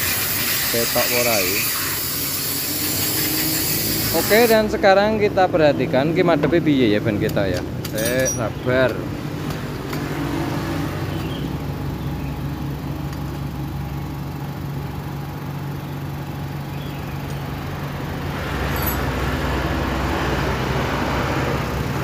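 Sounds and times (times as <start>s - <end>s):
vehicle engine running: 2.0s - 22.0s.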